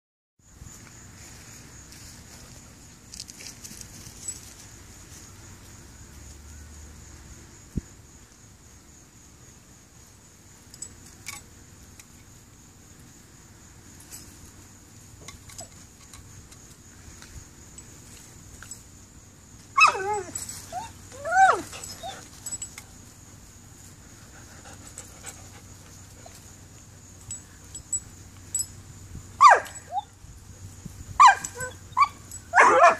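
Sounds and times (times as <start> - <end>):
dog whining: 19.8 - 22.6, 31.2 - 32.9.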